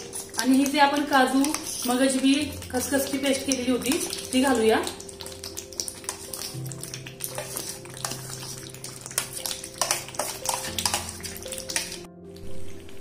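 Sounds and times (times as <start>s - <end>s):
steel spoon scraping steel bowl: 0.0s - 0.8s, 6.0s - 12.1s
soft stirring: 0.0s - 13.0s.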